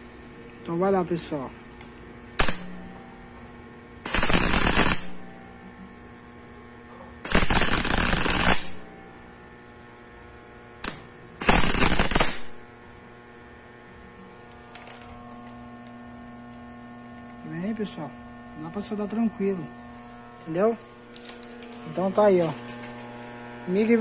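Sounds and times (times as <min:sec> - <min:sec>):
steady electrical hum: 0:00.0 - 0:24.0
welding arc crackling: 0:01.8 - 0:03.2, 0:04.0 - 0:05.5, 0:07.2 - 0:09.1, 0:10.6 - 0:12.7, 0:14.4 - 0:16.7, 0:20.0 - 0:24.0.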